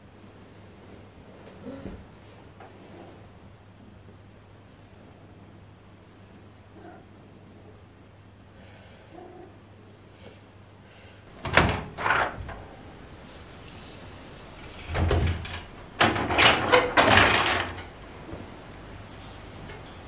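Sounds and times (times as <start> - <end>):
wooden shutters rattling: 11.3 - 12.7, 14.6 - 18.1.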